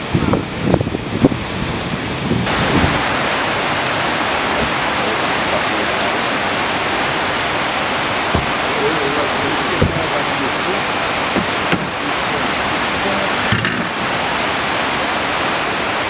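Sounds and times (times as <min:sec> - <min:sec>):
whitewater rushing over rapids: 0:00.0 - 0:16.0
dam outlet discharge: 0:13.5 - 0:14.0.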